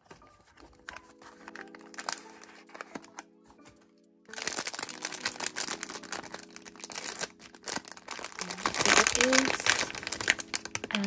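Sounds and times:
soft background music: 0:00.0 - 0:11.0
foil bag crinkling and tearing: 0:00.7 - 0:03.3, 0:04.3 - 0:11.0.

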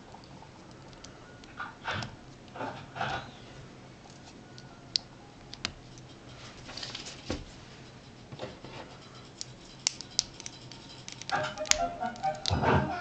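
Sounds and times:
plastic pieces clicking: 0:09.2 - 0:12.6.

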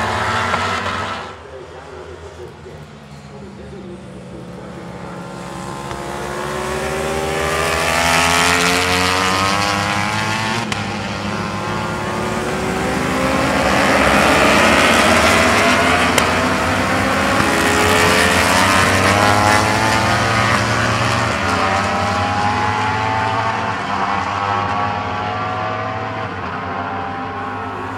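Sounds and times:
racing motorcycle engines: 0:00.0 - 0:27.9.

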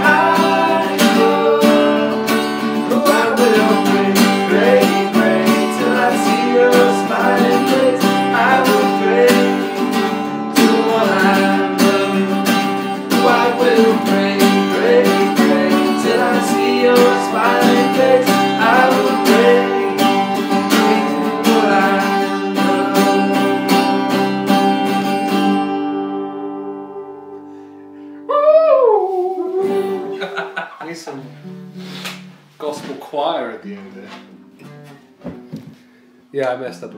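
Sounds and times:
men singing country song: 0:00.0 - 0:23.8
acoustic guitar strumming: 0:00.0 - 0:28.3, 0:29.5 - 0:36.2
acoustic bass guitar: 0:00.0 - 0:35.9.

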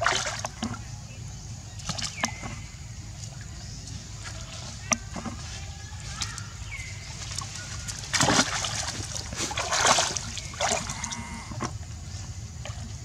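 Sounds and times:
monkeys splashing in water: 0:00.0 - 0:00.9, 0:01.8 - 0:11.8.

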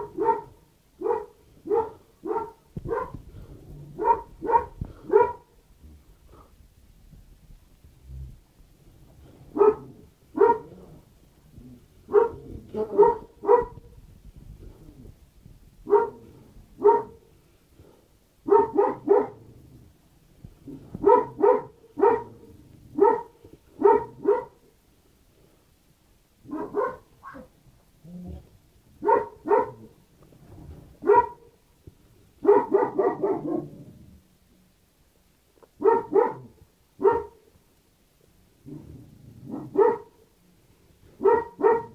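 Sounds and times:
dog barking: 0:00.0 - 0:03.2, 0:04.0 - 0:05.5, 0:09.5 - 0:10.8, 0:12.1 - 0:13.9, 0:15.8 - 0:17.3, 0:18.4 - 0:19.5, 0:21.0 - 0:24.6, 0:26.4 - 0:27.5, 0:29.0 - 0:29.9, 0:31.0 - 0:31.6, 0:32.4 - 0:33.8, 0:35.8 - 0:37.5, 0:39.5 - 0:40.3, 0:41.2 - 0:41.9.

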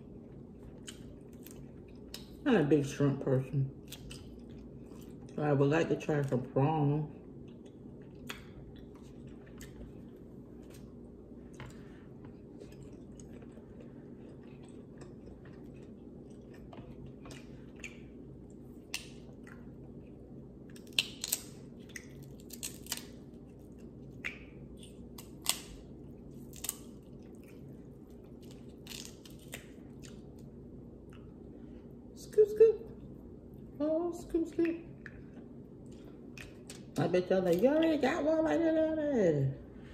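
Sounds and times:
low hum: 0:00.0 - 0:39.9
chewing: 0:00.3 - 0:02.4, 0:03.8 - 0:05.4, 0:07.1 - 0:10.9, 0:11.5 - 0:31.5
shrimp shells cracking: 0:20.7 - 0:23.2, 0:26.4 - 0:27.0, 0:28.4 - 0:29.8.

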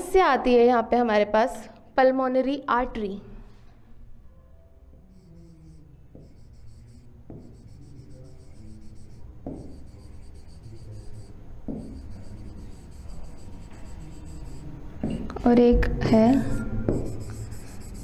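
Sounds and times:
steady low hum: 0:03.7 - 0:18.0
stylus scratching on board: 0:05.0 - 0:15.2, 0:16.9 - 0:18.0
stylus taps: 0:07.3 - 0:07.6, 0:09.4 - 0:10.0, 0:11.6 - 0:15.9.

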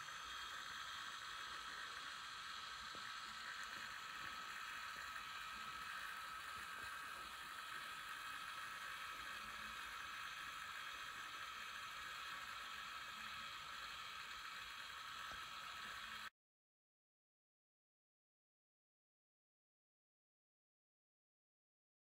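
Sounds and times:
small electric motors whirring: 0:00.0 - 0:16.3.

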